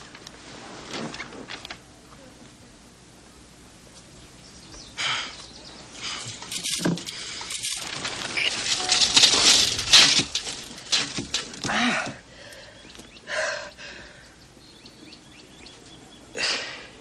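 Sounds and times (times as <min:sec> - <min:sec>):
man gasping breaths: 0:11.6 - 0:14.4.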